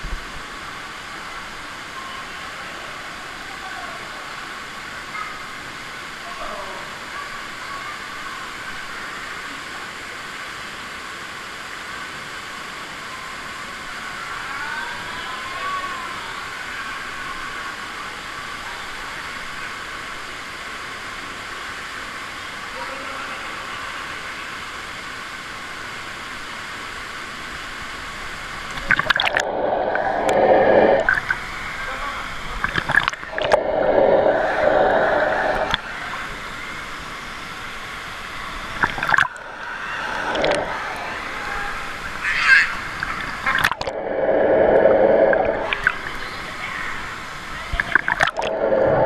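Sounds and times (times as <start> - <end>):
running water: 0.0 - 49.0
pool water splashing: 28.4 - 49.0
muffled underwater gurgle: 28.6 - 37.0, 38.6 - 49.0.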